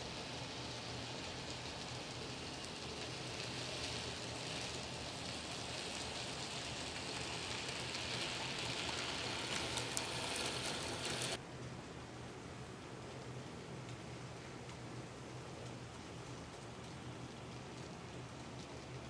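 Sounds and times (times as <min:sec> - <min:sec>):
model train wheels on rail: 0:00.0 - 0:11.4.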